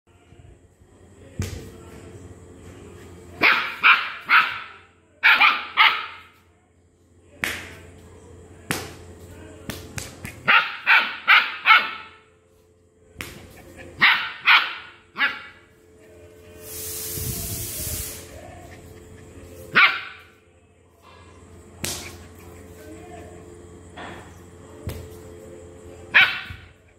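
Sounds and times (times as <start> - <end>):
dog barking angrily: 3.4 - 6.3, 10.4 - 12.2, 13.9 - 15.6, 19.7 - 20.2, 26.1 - 26.7
short hiss: 16.6 - 18.3.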